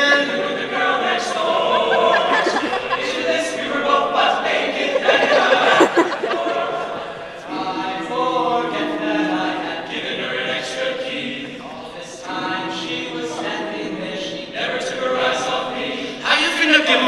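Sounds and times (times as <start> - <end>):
men singing a cappella harmony: 0.0 - 17.0.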